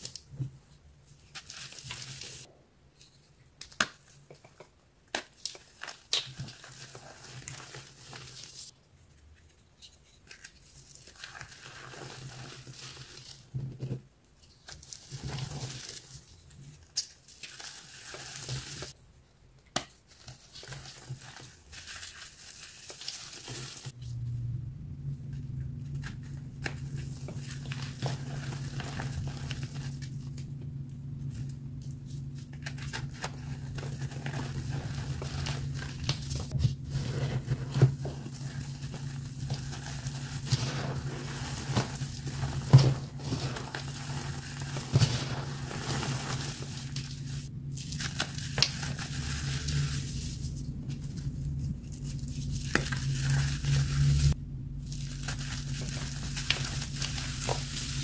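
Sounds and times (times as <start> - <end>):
chalk crunching and crumbling: 1.1 - 19.0, 19.8 - 24.0, 25.6 - 30.6, 31.2 - 58.0
steady low hum: 23.9 - 58.0.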